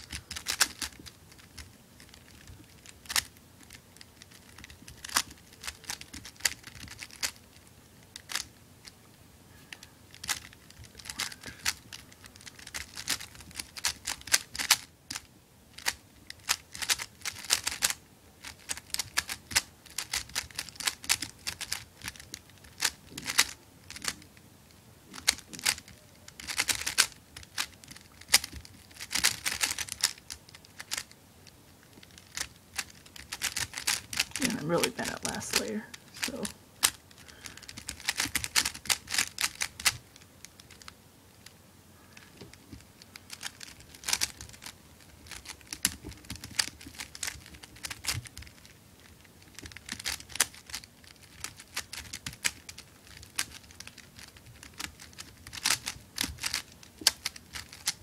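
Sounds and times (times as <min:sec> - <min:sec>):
puzzle cube plastic clicks: 0:00.0 - 0:09.0, 0:09.8 - 0:24.3, 0:25.1 - 0:41.0, 0:42.2 - 0:58.0.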